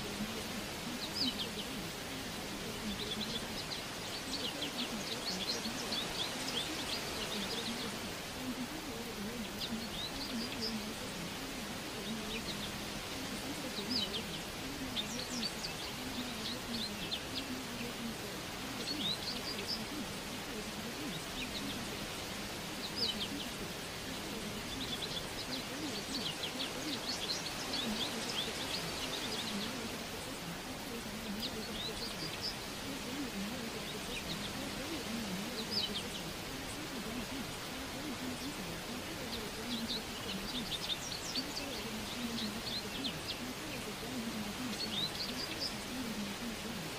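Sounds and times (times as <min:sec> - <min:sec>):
birds chirping: 0:00.0 - 0:46.9
steady hiss: 0:00.0 - 0:46.9.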